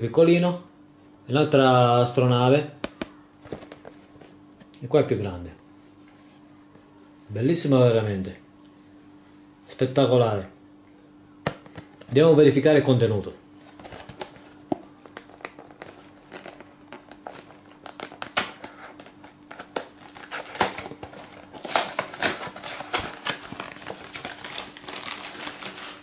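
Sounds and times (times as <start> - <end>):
plastic bags crinkling: 15.0 - 26.0.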